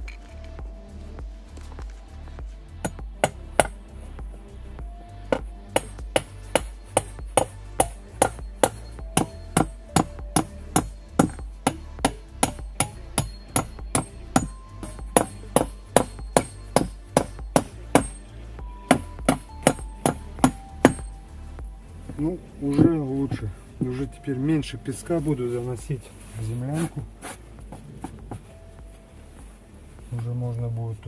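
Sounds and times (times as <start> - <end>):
hammer driving nails into wood: 5.3 - 18.2, 18.9 - 21.1.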